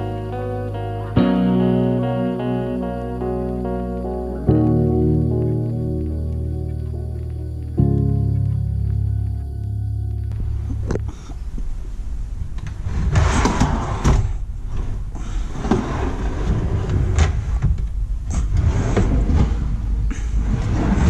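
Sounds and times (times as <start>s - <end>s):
steady low rumble: 0.0s - 13.1s.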